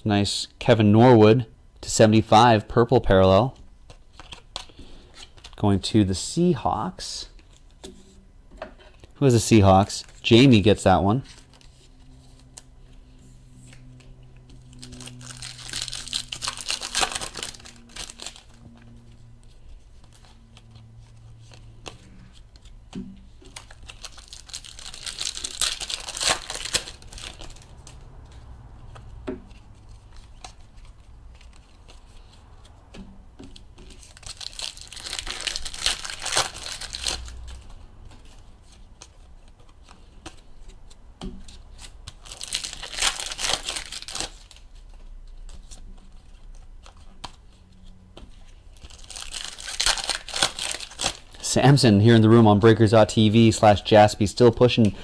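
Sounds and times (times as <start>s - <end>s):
handling of cards and wrappers: 3.3s - 5.6s, 8.9s - 55.0s
foil wrappers tearing and crinkling: 14.6s - 19.0s, 23.4s - 28.0s, 33.8s - 38.4s, 41.7s - 44.8s, 48.7s - 51.4s.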